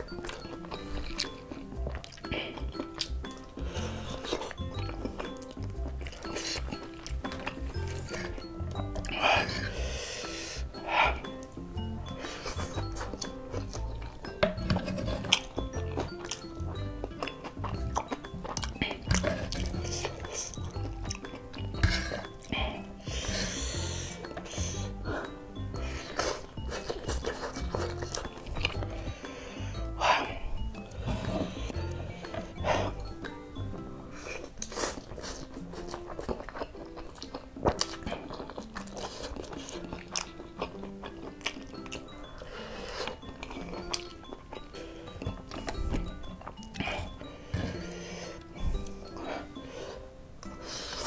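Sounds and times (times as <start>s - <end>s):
background music: 0.0s - 51.0s
noodles slurped and chewed: 0.0s - 51.0s.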